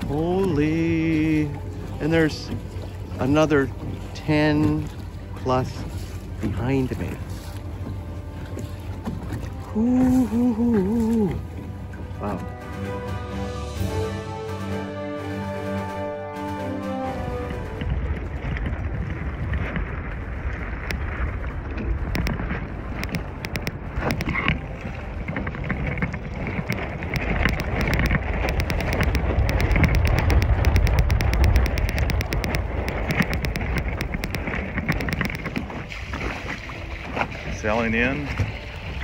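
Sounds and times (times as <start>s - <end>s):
water slapping against boat hull: 0.0s - 13.0s, 16.8s - 39.0s
wind buffeting microphone: 17.2s - 39.0s
sharp clicks and taps: 23.0s - 24.4s, 26.6s - 35.6s.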